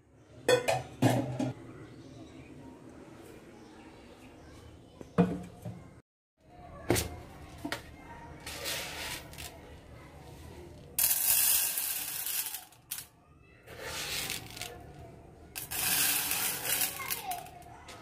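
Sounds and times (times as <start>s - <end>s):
lentils rattling into metal pot: 8.6s - 9.5s, 11.0s - 13.1s, 13.7s - 14.9s, 15.6s - 17.6s.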